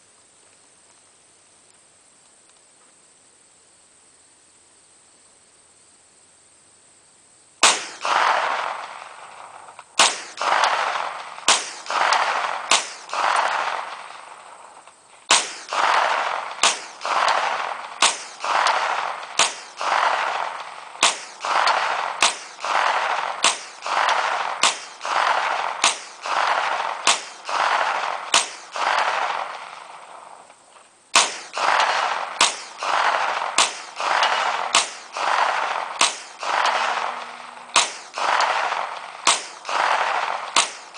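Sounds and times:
gunshots with echo: 7.6s - 14.4s, 15.3s - 30.1s, 31.2s - 40.9s.

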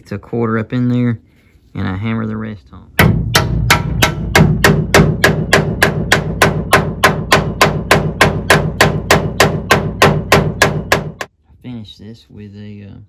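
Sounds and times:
hammer striking nail: 3.0s - 11.3s.

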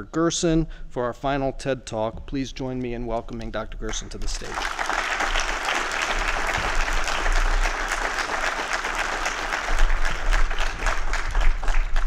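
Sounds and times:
sharp individual claps: 3.2s - 12.0s
audience applauding: 3.9s - 12.0s.

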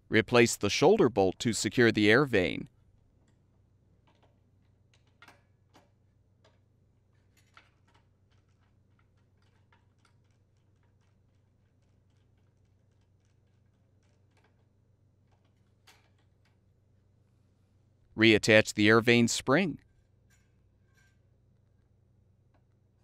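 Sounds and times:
screwdriver clicking on metal parts: 7.2s - 14.7s.

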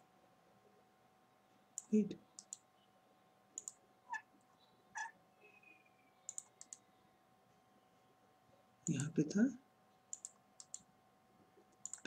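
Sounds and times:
computer mouse clicks: 1.8s - 2.6s, 3.6s - 3.8s, 6.2s - 6.9s, 10.1s - 10.9s, 11.7s - 12.0s.

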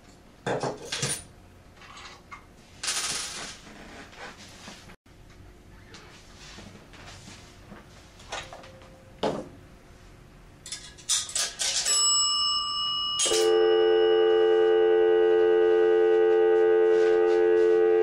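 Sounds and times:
coins clattering into slots: 2.8s - 3.4s, 10.7s - 12.0s, 13.2s - 13.5s
coin bell ringing: 11.8s - 14.9s
telephone dial tone: 13.4s - 18.0s.

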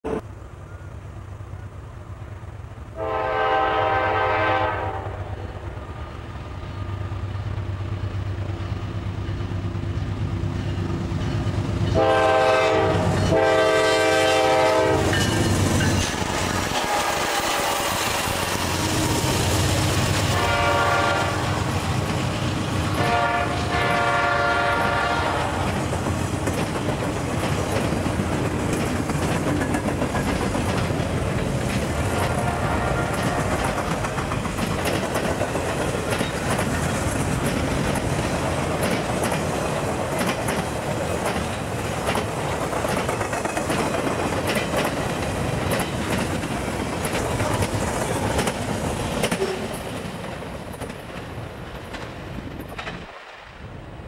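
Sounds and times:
train rumbling past: 0.0s - 54.0s
train horn blasts: 3.0s - 5.6s, 11.9s - 15.3s, 18.7s - 21.8s, 22.9s - 25.8s, 32.1s - 33.8s
wheels clacking over rail joints: 6.8s - 53.3s.

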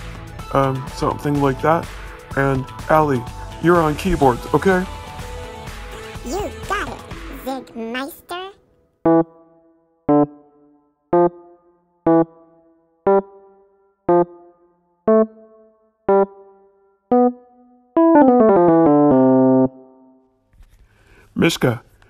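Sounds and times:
electronic keyboard piano chords: 9.0s - 20.3s.

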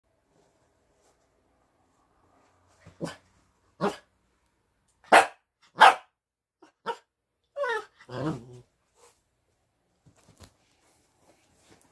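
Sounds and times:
puppy barking: 3.8s - 4.1s, 5.0s - 8.4s.

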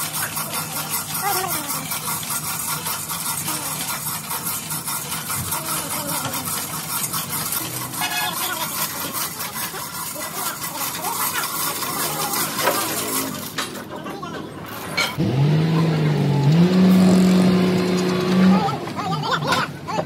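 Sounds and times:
chain hoist rattling: 0.0s - 15.2s.

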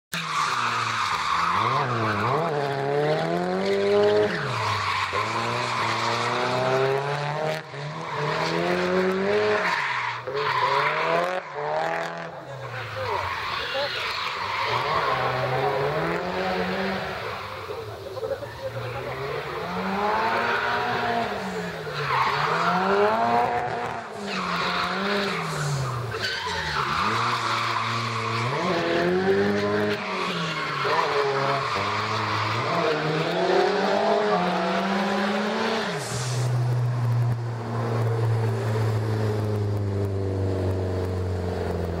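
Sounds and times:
car engine revving: 0.1s - 42.0s
tyres screeching: 12.4s - 23.3s.

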